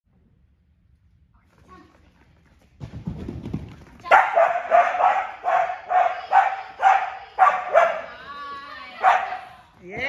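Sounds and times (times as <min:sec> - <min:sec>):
dog barking: 0:04.1 - 0:08.1, 0:09.0 - 0:09.5.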